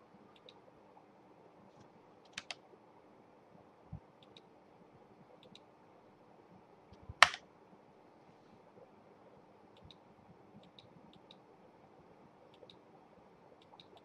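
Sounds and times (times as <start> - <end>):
computer mouse and keyboard clicks: 2.3 - 2.6, 13.6 - 14.0.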